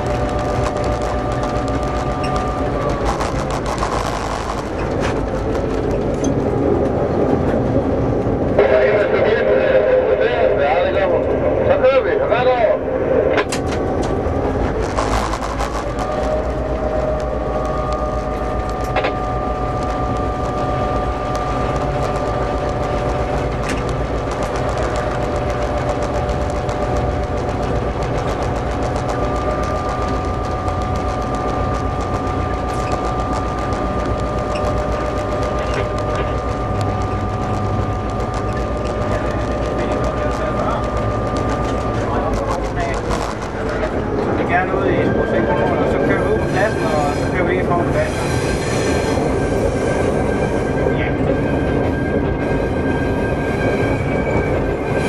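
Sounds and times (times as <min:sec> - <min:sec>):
high wheel squeal: 0:00.0 - 0:05.4, 0:14.9 - 0:55.0
diesel locomotive engine running: 0:00.0 - 0:55.0
rumble of moving train: 0:00.0 - 0:55.0
steady whine: 0:00.0 - 0:55.0
higher tone: 0:10.0 - 0:48.1.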